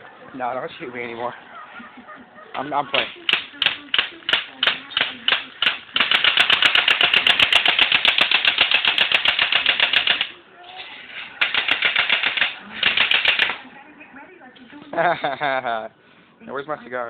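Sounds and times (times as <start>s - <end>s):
bb gun firing: 3.0s - 10.4s, 11.4s - 13.6s.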